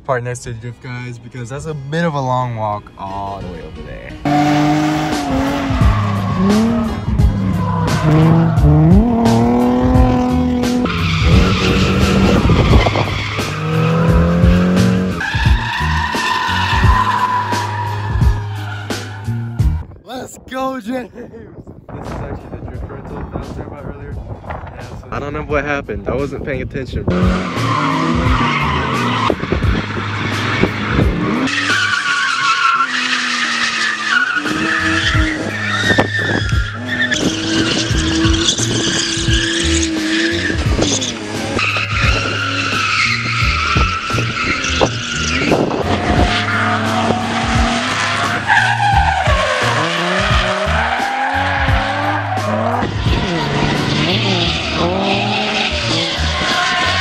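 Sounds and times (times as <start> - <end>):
car engines revving: 2.9 - 19.8, 27.0 - 57.0
tyres squealing: 4.1 - 19.6, 31.2 - 57.0.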